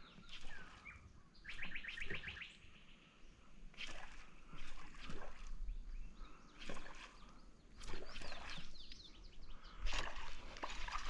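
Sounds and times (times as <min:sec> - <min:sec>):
birds chirping: 0:00.0 - 0:03.6, 0:04.2 - 0:11.0
lure splashing on water: 0:03.7 - 0:05.7, 0:06.5 - 0:09.1, 0:09.8 - 0:11.0.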